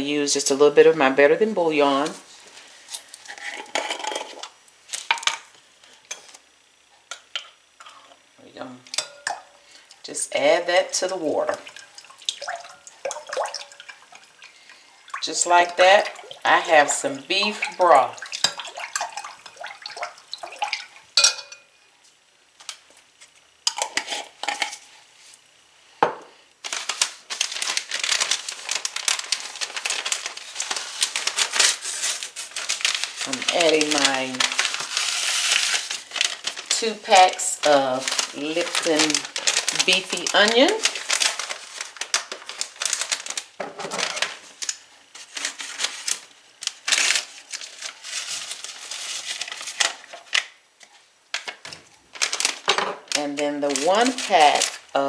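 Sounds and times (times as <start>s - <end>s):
metal spoon clinking glass bowl: 8.9s - 9.4s, 21.2s - 21.7s
paper packet crinkling: 26.6s - 55.0s.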